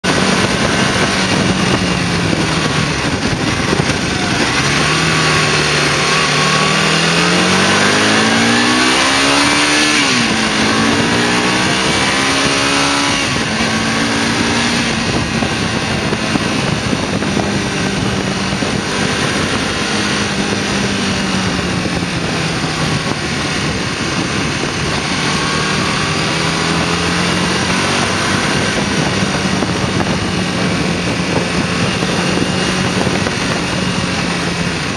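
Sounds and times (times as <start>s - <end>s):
motorcycle engine revving: 0.0s - 34.9s
wind rush: 0.0s - 34.9s.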